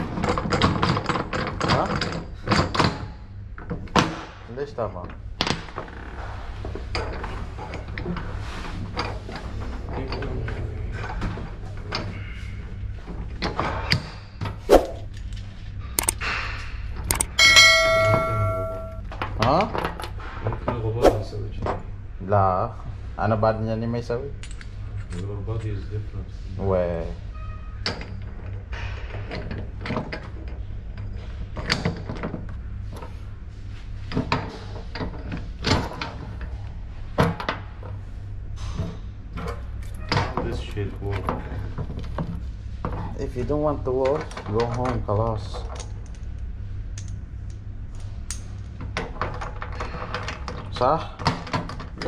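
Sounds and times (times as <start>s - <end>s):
steady low hum: 6.2s - 19.2s
metal tools clinking: 17.1s - 19.0s
metal ringing like a bell: 17.2s - 19.0s.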